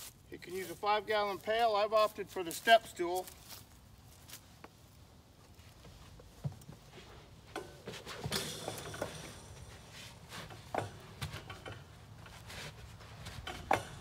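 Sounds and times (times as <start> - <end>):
knocks and creaks: 5.8 - 14.0.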